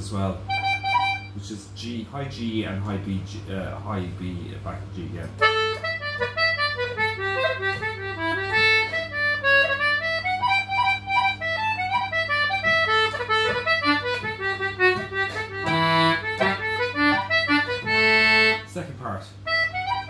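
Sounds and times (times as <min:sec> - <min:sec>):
concertina playing a reel: 0:05.4 - 0:20.0.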